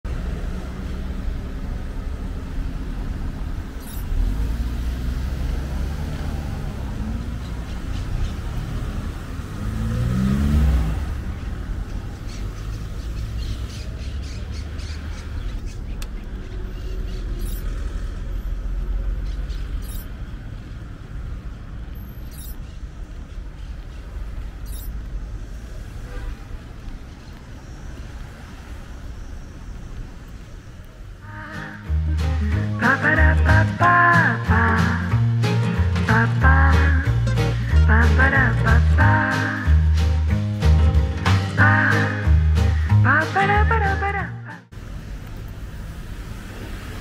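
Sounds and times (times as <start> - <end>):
rumble of passing cars: 0.0 - 47.0
car accelerating past: 2.7 - 15.4.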